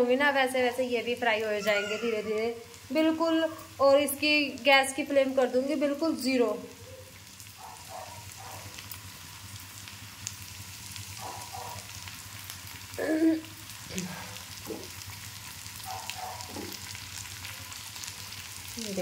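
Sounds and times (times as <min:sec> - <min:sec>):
oil sizzling in a frying pan: 0:00.0 - 0:19.0
person speaking: 0:01.6 - 0:02.5.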